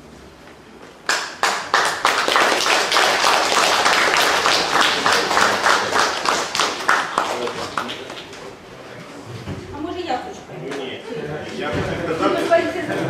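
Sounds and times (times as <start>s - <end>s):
crowd applauding: 1.1s - 8.5s.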